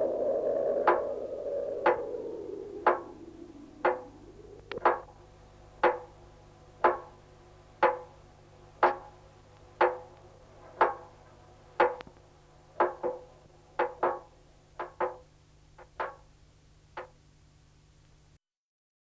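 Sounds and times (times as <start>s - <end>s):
low steady hum: 0.0s - 18.4s
struck percussion notes: 0.8s - 5.1s.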